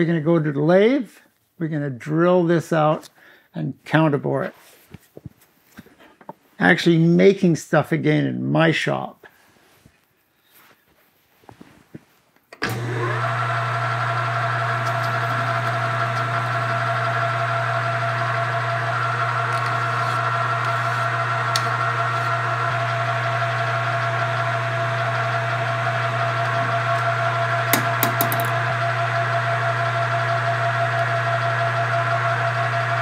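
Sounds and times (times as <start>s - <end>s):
metal lathe humming: 12.6s - 33.0s.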